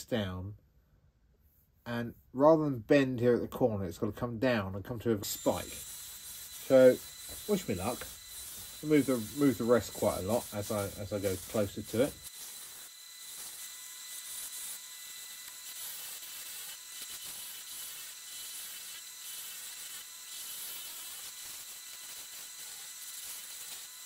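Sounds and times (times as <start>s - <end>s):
faint high whine: 5.0s - 15.9s
lathe tool scraping wood: 5.2s - 24.0s.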